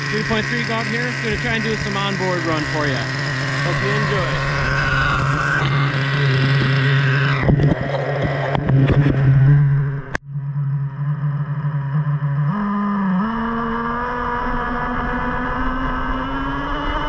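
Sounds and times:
model truck engine idling: 0.0s - 7.4s.

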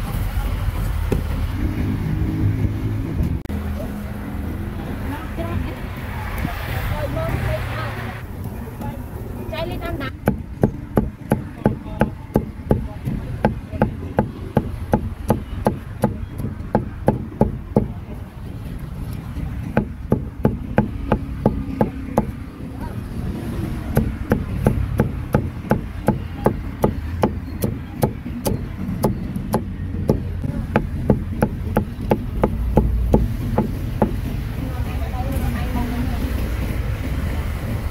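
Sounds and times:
cleaver chopping meat: 10.1s - 18.0s, 19.7s - 22.4s, 23.9s - 34.2s.

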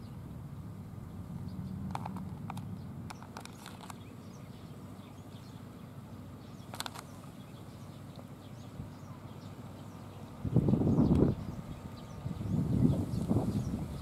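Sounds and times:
distant bird chirps: 0.0s - 14.0s
sharp clicks: 1.8s - 4.1s, 6.7s - 7.4s
wind rumble on microphone: 10.3s - 14.0s.

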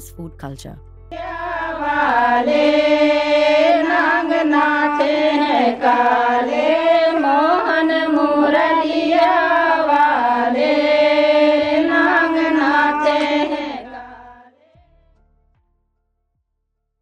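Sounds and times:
women singing folk song: 1.1s - 14.5s.

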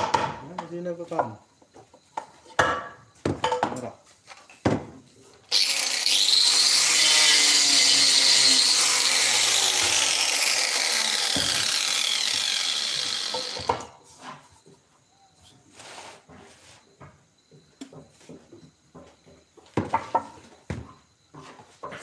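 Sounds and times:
power tool cutting wood: 5.5s - 13.9s
wooden knocks of timber: 18.9s - 21.0s.

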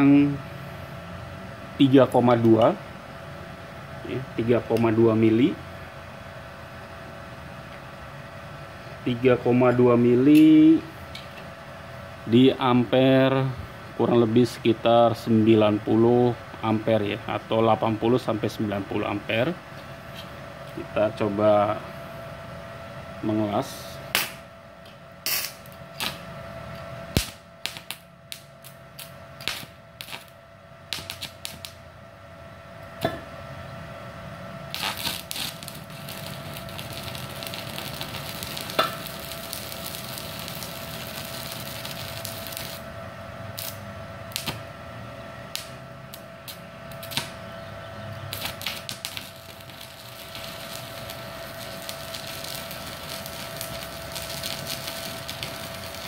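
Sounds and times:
welding arc crackling: 25.3s - 26.4s, 27.1s - 31.9s, 34.6s - 44.7s, 45.4s - 47.4s, 48.2s - 56.0s.

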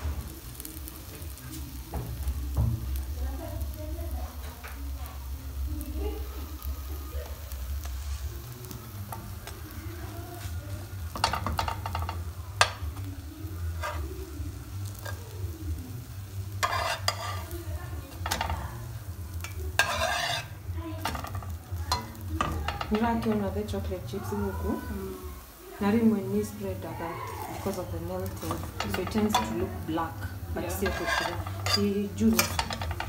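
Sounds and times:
pancake batter sizzling: 0.0s - 33.0s
metal spatula scraping pan: 13.7s - 14.2s, 16.6s - 18.6s, 19.4s - 23.6s, 27.6s - 33.0s.

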